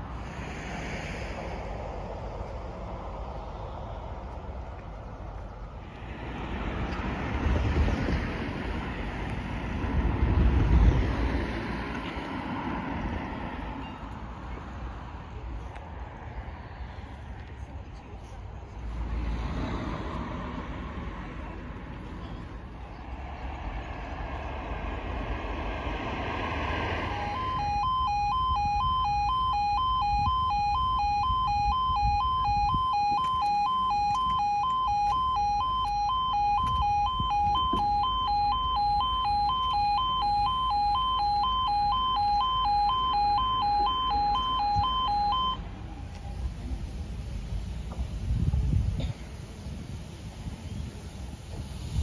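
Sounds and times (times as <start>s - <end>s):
road traffic noise: 0.0s - 52.0s
level crossing warning alarm: 26.7s - 45.7s.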